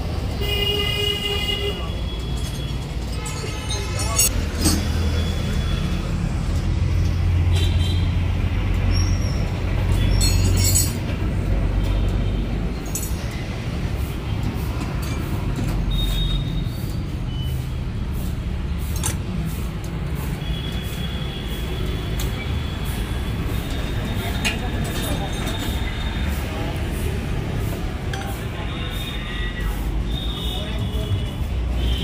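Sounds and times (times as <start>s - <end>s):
low rumble of vehicle engines: 0.0s - 32.0s.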